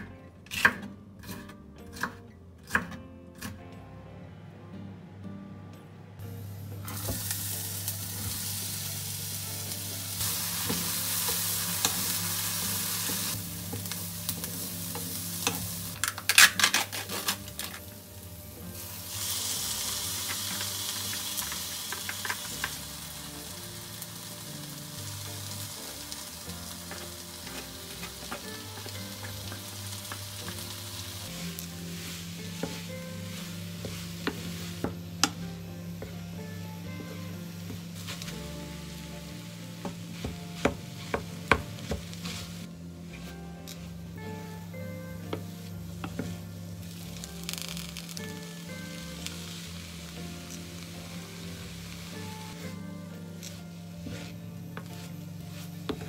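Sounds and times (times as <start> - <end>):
vegetables sizzling in a pan: 6.4 - 44.4, 45.4 - 52.8, 53.4 - 56.0.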